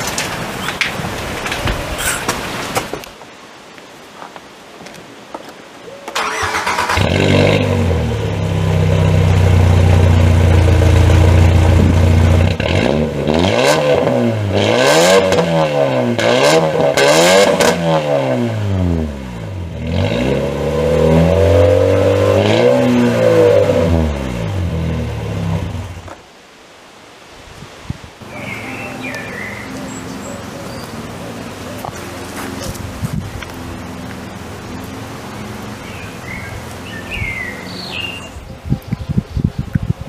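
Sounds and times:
car engine revving through exhaust: 6.7s - 26.1s.

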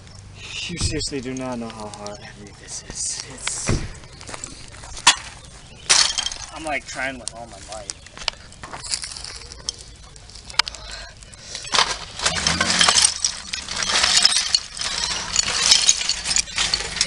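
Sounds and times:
bonfire crackling and popping: 3.2s - 17.0s
glass cracking in heat: 5.0s - 17.0s.

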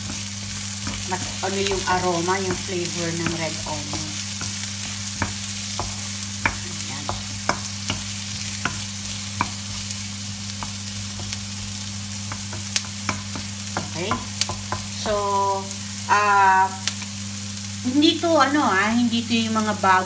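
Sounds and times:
wooden spatula knocking on pan: 0.0s - 15.2s
onions sizzling in oil: 0.0s - 20.0s.

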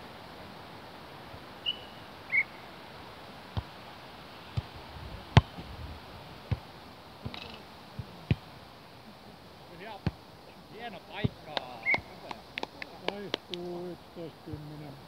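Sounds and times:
short high chirps: 1.6s - 2.6s.

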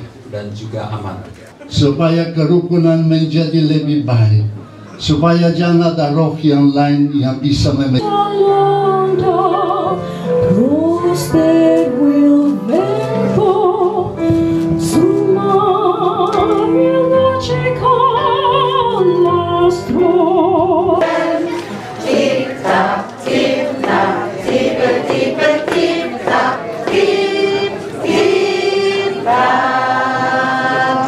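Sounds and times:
woman singing with vibrato: 8.0s - 14.2s, 14.8s - 24.2s
held keyboard chords: 8.0s - 31.0s
children singing together: 21.0s - 31.0s.

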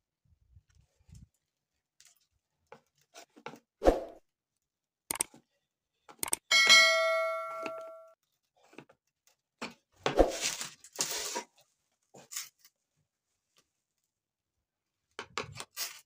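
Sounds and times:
ringing metal strike: 6.5s - 8.2s.

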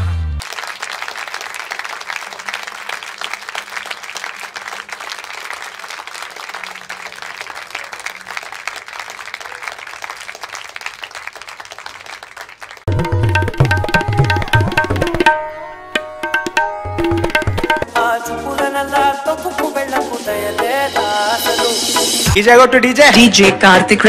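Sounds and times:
audience applauding: 0.4s - 15.3s.

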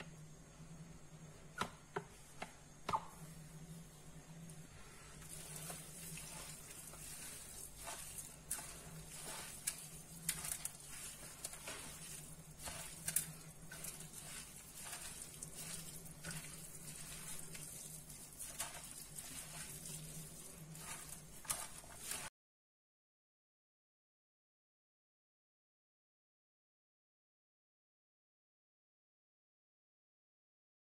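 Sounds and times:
steady low hum: 0.0s - 22.0s
hand mixing wet stuffing: 3.2s - 22.3s.

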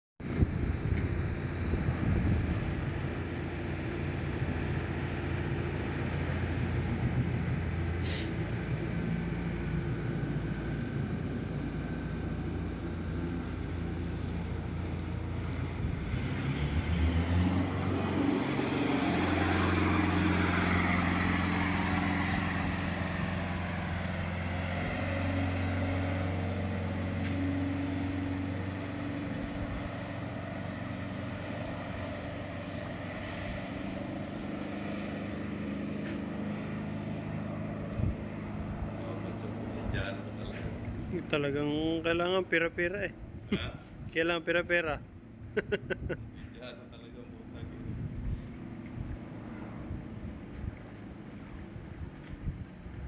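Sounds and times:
boat engine running: 0.2s - 53.0s
water rushing: 11.6s - 41.1s.

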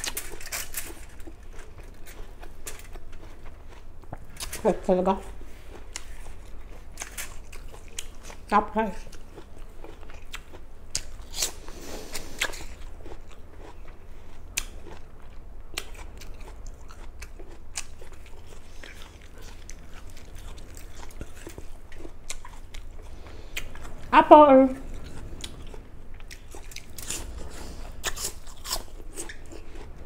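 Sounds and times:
apple crunching: 0.0s - 24.0s, 24.8s - 30.0s
soft chewing clicks: 0.0s - 24.1s, 24.8s - 30.0s.

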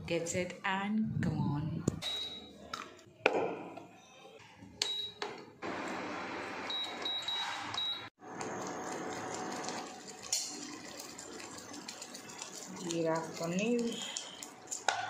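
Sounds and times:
cooktop control panel beeping: 4.8s - 5.4s, 6.6s - 8.1s.

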